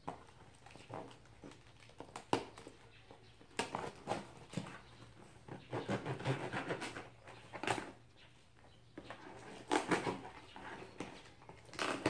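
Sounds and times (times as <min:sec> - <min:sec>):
cardboard flaps scraping and rustling: 0:09.1 - 0:12.0
packing tape slit: 0:11.6 - 0:12.0.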